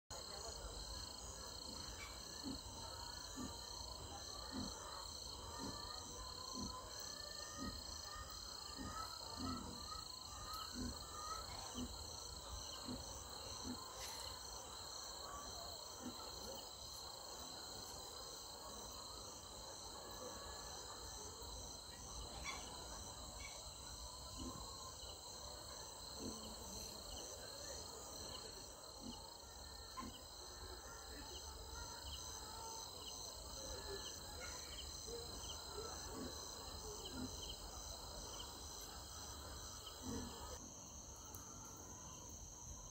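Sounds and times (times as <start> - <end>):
crickets chirring: 20.8 - 42.9.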